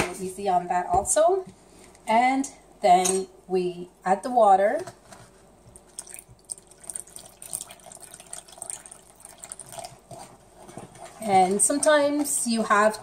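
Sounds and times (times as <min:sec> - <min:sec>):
water trickling into flour: 0:05.8 - 0:11.2.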